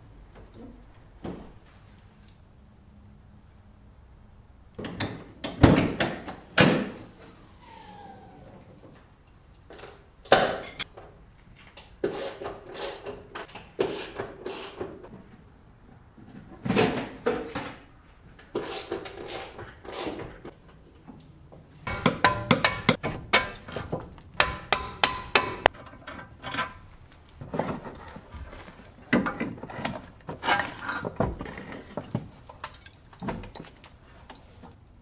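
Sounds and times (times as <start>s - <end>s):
metal tools clanking: 21.8s - 23.7s.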